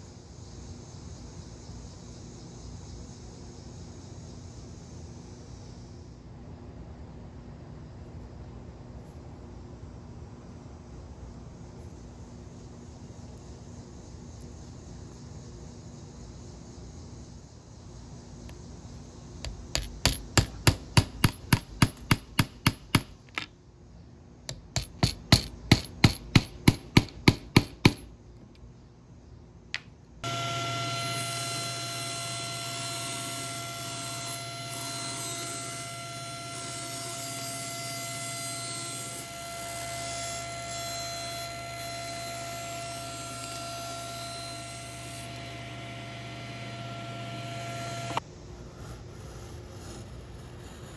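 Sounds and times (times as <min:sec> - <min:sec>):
hammer tapping nails into metal: 0:19.5 - 0:23.5, 0:24.5 - 0:28.0
table saw humming: 0:30.2 - 0:48.2.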